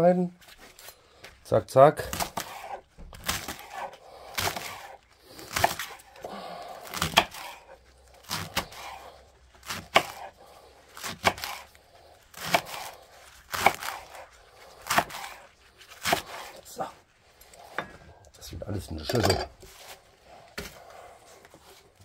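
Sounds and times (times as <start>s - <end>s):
knife chopping on cutting board: 2.1s - 6.0s, 6.9s - 7.6s, 9.6s - 10.4s, 11.0s - 11.6s, 12.4s - 14.2s, 14.8s - 15.4s, 16.0s - 16.6s.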